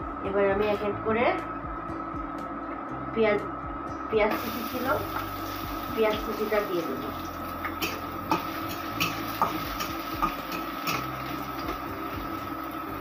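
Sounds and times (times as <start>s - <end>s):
steady hum: 0.0s - 13.0s
utensil scraping a wok: 7.0s - 12.6s.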